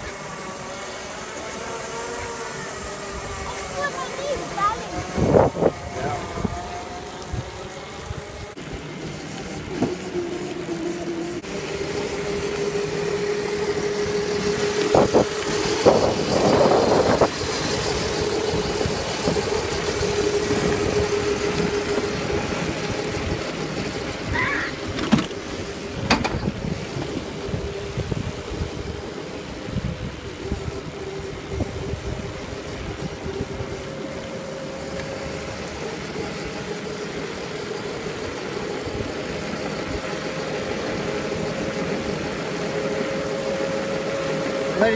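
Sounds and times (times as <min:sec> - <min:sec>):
electric motor whine: 0:00.0 - 0:44.9
tyre and wind noise: 0:03.0 - 0:10.8, 0:12.2 - 0:35.9.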